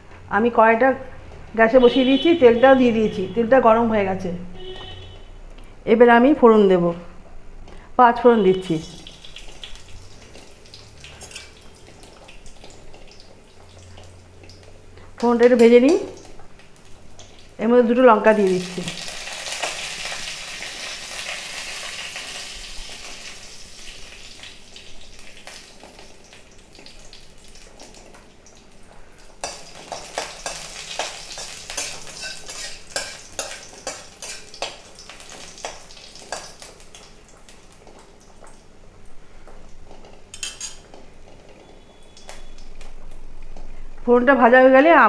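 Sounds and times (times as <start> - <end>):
spices sizzling in hot oil: 8.6 - 43.8
metal spatula scraping pan: 30.2 - 34.6, 40.3 - 40.8.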